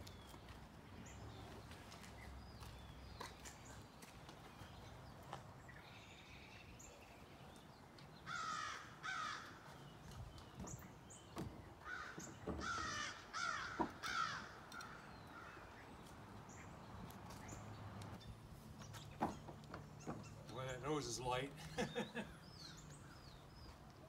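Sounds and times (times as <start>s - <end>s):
harsh bird calls: 5.7s - 23.8s.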